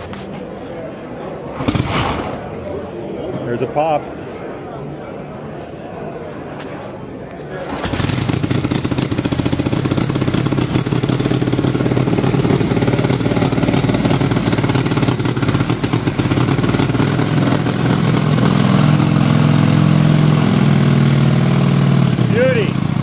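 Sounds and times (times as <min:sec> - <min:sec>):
motorcycle engine idling: 0:07.7 - 0:23.0.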